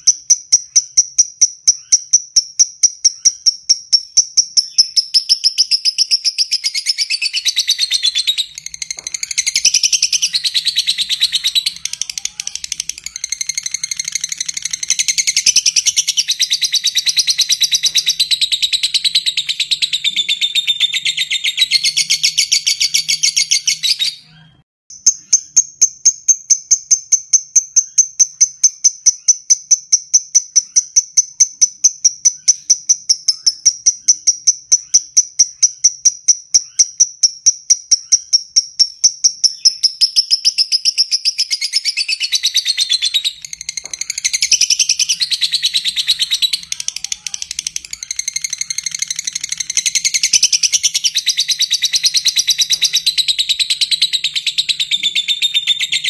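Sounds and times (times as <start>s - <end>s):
lovebird shrill chatter: 4.6s - 24.0s, 39.6s - 56.0s.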